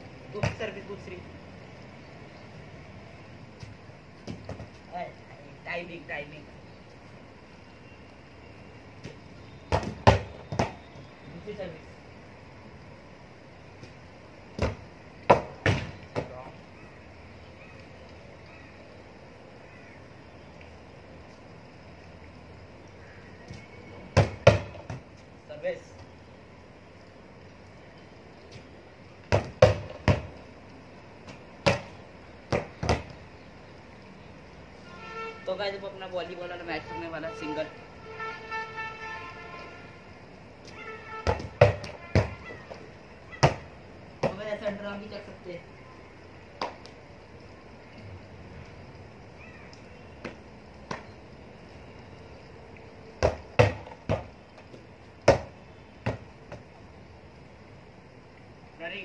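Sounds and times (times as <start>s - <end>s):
volleyball thumps: 0.4s - 0.8s, 9.0s - 10.8s, 14.5s - 16.4s, 24.1s - 25.1s, 29.3s - 30.4s, 31.3s - 33.2s, 41.2s - 42.8s, 43.4s - 44.8s, 53.2s - 56.6s.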